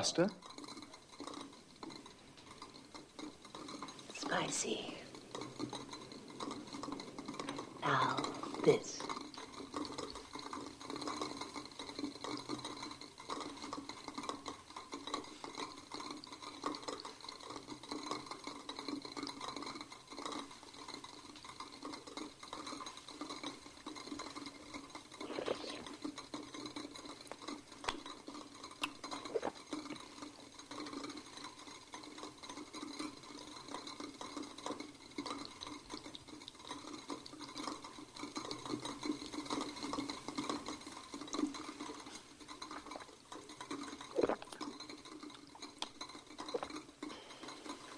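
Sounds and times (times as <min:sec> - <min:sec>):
liquid swishing in mouth: 0:00.0 - 0:47.9
person slurping coffee: 0:00.6 - 0:47.9.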